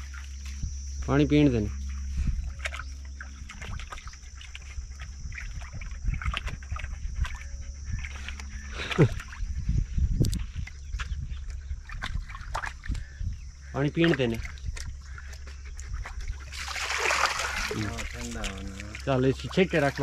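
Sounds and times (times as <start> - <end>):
water sloshing: 1.5 - 9.6, 10.2 - 20.0
dogs drinking water: 1.6 - 20.0
dogs panting: 3.5 - 9.9.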